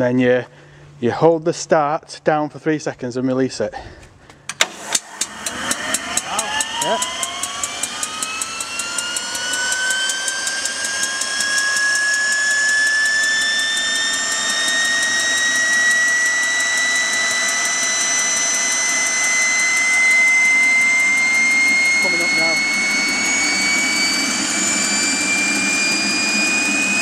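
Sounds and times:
gas turbine whine rising: 4.2s - 27.0s
fast ticking: 6.1s - 24.5s.

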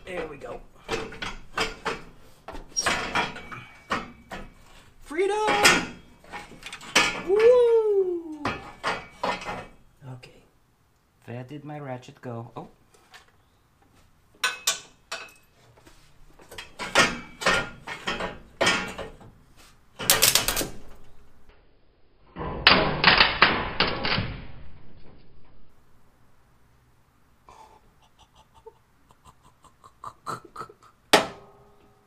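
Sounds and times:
hand tools clanking on metal: 0.0s - 7.6s, 8.3s - 9.9s, 14.4s - 15.6s, 16.4s - 19.4s.

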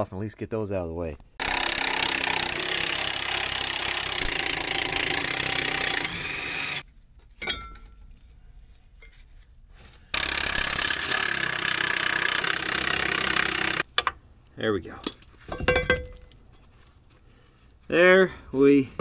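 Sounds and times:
impact wrench hammering: 10.2s - 14.2s.

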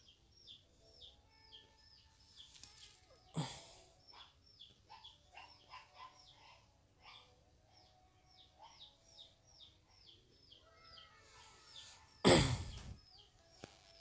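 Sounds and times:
small bird chirping: 4.0s - 14.0s.

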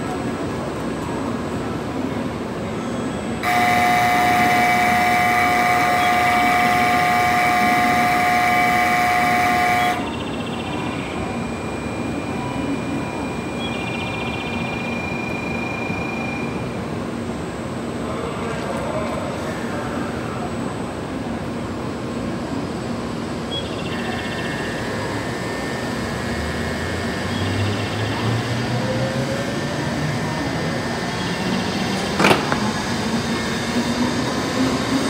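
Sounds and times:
station hum: 0.0s - 18.4s, 19.3s - 35.0s
faint steady high tone: 2.7s - 16.9s, 23.5s - 26.2s
electronic platform departure bell: 3.4s - 17.3s.

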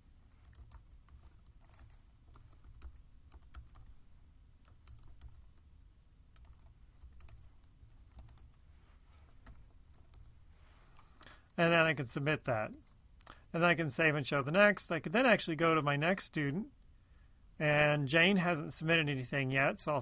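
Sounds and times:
low steady hum: 0.0s - 20.0s
computer keyboard typing: 0.4s - 3.9s, 4.6s - 5.7s, 6.4s - 8.6s, 9.4s - 10.3s.

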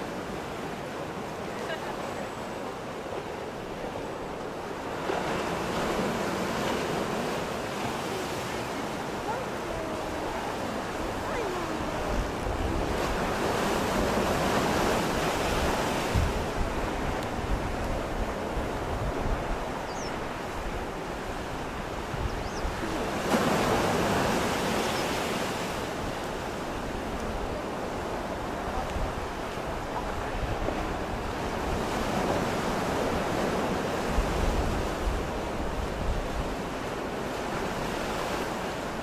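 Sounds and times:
ocean surf breaking: 0.0s - 39.0s
wind buffeting microphone: 9.3s - 24.8s.

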